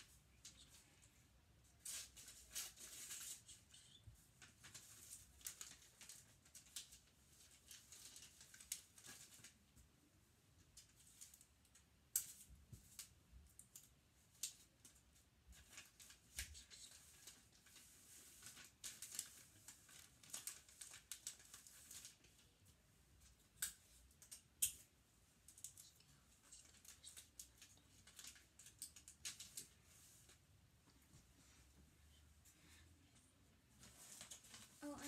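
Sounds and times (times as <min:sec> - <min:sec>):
sharp paper crackles: 0:01.8 - 0:09.6, 0:15.5 - 0:22.4, 0:25.5 - 0:29.7, 0:33.8 - 0:35.0
wrapping paper crinkling: 0:01.8 - 0:09.6, 0:10.8 - 0:22.5, 0:25.4 - 0:30.4, 0:33.8 - 0:35.0.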